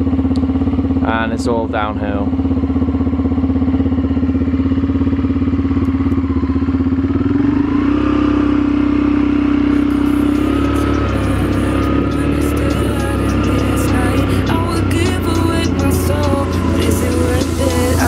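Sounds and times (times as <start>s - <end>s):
atv engine running: 0.0s - 18.0s.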